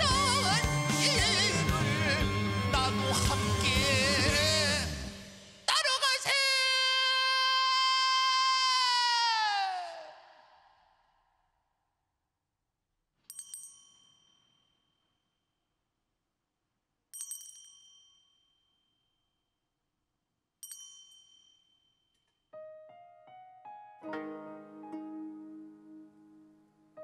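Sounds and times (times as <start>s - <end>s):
keyboard notes and chord: 0.0s - 5.2s, 22.6s - 27.0s
bell ringing: 13.3s - 15.1s, 17.2s - 19.0s, 20.6s - 22.4s.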